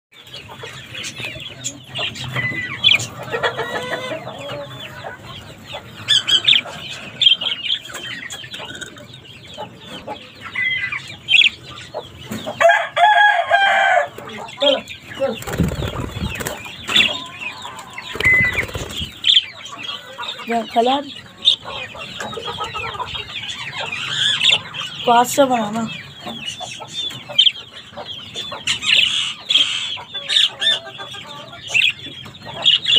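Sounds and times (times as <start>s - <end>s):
budgerigars chattering: 0.2s - 12.6s, 14.2s - 32.9s.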